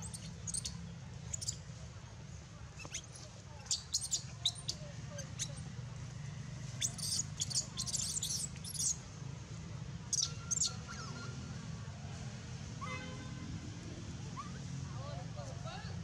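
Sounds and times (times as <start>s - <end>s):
baby monkey squeaking: 0.0s - 0.7s, 1.3s - 1.6s, 2.8s - 5.6s, 6.8s - 9.0s, 10.1s - 11.0s.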